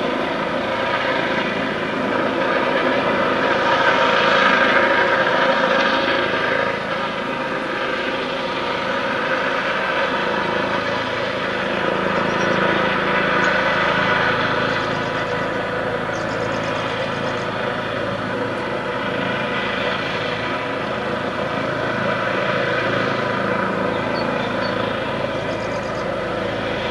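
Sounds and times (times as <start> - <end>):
helicopter flying overhead: 0.0 - 26.9.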